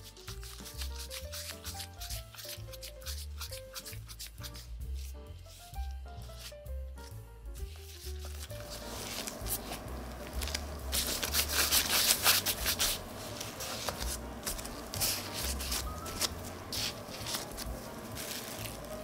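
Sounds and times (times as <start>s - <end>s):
hands rubbing dough on wood: 0.0s - 19.0s.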